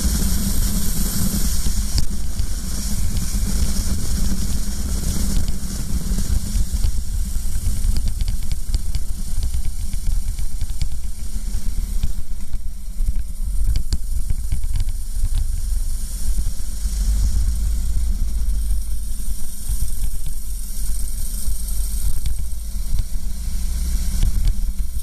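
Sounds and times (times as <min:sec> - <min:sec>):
kart engine rumble: 0:14.9 - 0:25.0.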